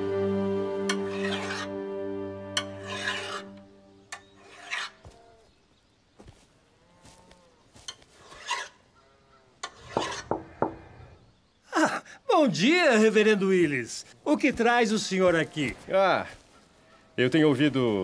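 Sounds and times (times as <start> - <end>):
soft music: 0.0 - 4.1
hand file rasping on iron: 0.9 - 1.7, 2.6 - 3.6, 4.2 - 5.0, 8.2 - 8.8, 9.6 - 10.7.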